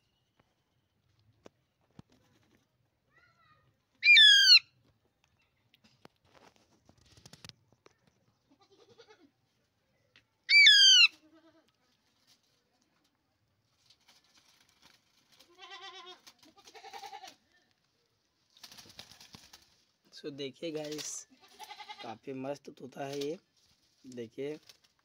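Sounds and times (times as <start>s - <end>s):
parakeet quavering calls: 4.0s - 4.6s, 10.5s - 11.1s
parakeet screeching: 4.0s - 4.6s, 10.5s - 11.1s.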